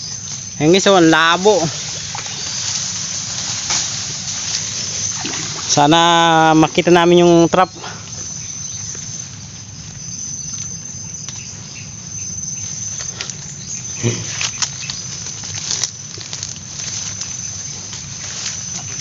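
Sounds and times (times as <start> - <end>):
high insect drone: 0.0 - 19.0
palm fronds rustling: 0.0 - 19.0
water sloshing: 1.5 - 5.9.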